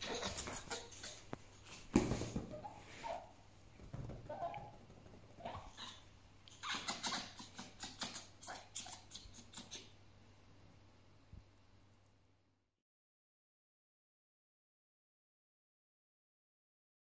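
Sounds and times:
fox squeaky calls: 2.5 - 3.4, 4.3 - 4.8, 5.4 - 9.9
fox sharp chattering: 5.4 - 9.9.

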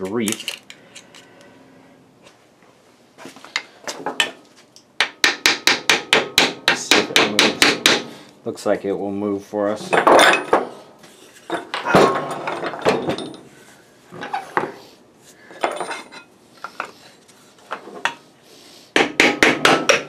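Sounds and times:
hammer knocking on wooden block: 5.0 - 8.1, 19.0 - 20.0.

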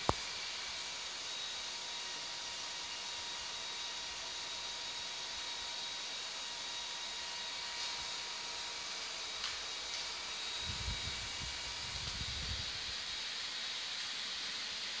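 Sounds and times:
steady hiss: 0.0 - 4.0, 7.6 - 15.0.

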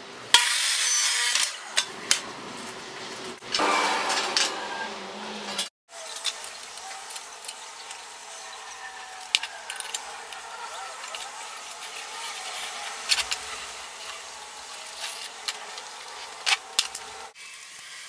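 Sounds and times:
miter saw cutting wood: 3.4 - 17.4.

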